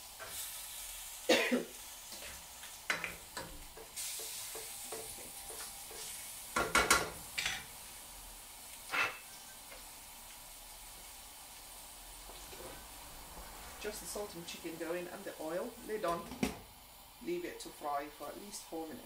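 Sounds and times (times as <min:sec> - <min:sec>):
chicken sizzling in oil: 0:00.0 - 0:19.0
wooden spoon knocking and scraping pan: 0:02.9 - 0:07.6.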